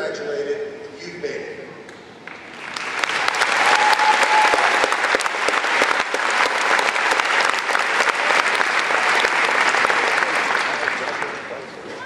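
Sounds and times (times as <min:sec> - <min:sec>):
large audience applauding: 0:02.3 - 0:11.6.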